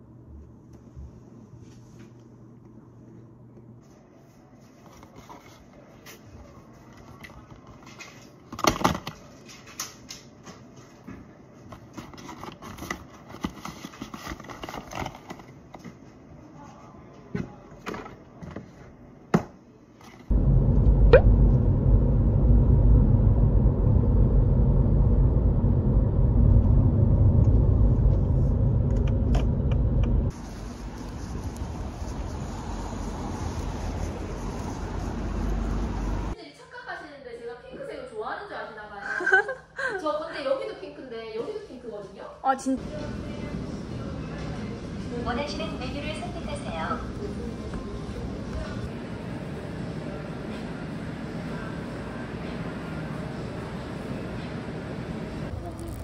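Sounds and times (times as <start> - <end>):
loud low rumble: 20.3 - 36.4.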